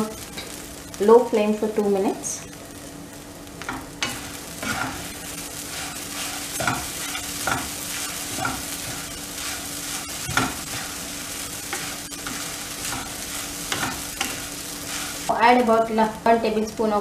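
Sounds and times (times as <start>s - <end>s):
food sizzling: 0.0s - 17.0s.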